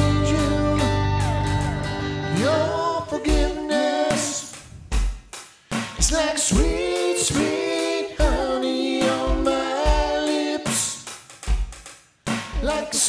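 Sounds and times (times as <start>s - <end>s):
electric guitar: 0.0s - 3.0s
drums: 0.0s - 13.0s
woman singing: 2.3s - 4.5s.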